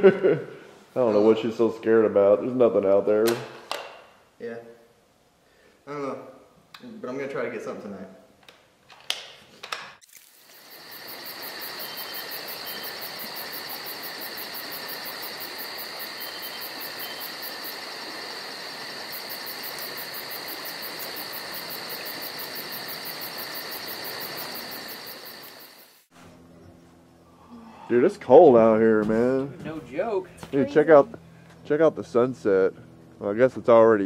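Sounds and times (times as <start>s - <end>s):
crickets and insects trilling: 10.0s - 26.1s.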